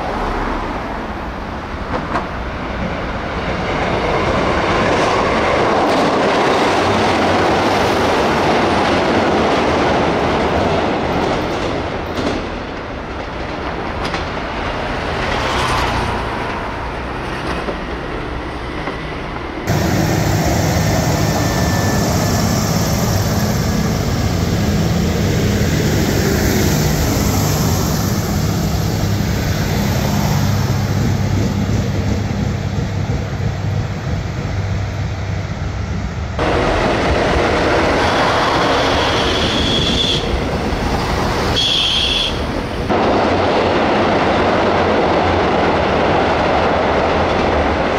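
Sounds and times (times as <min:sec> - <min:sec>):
train running on rails: 0:00.0 - 0:47.9
diesel engine drone: 0:19.7 - 0:37.4.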